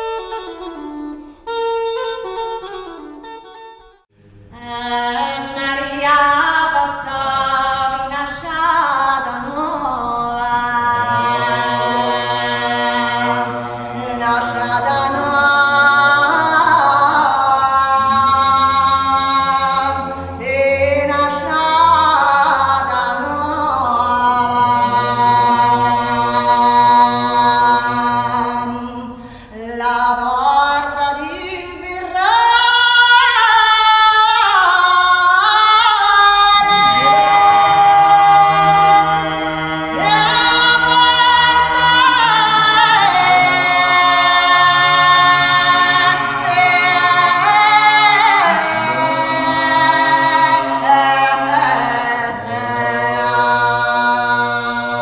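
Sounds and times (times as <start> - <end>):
woman singing: 4.5 - 12.2, 12.8 - 39.2, 40.0 - 52.6
low steady drone: 9.2 - 29.2, 36.6 - 51.5.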